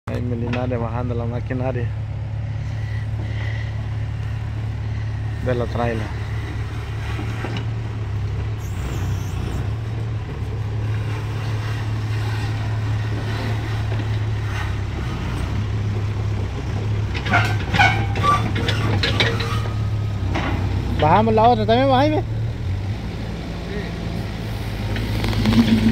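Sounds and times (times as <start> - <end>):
excavator diesel engine running: 0.1 - 25.9
metallic clanks on steel ramps: 5.8 - 21.8.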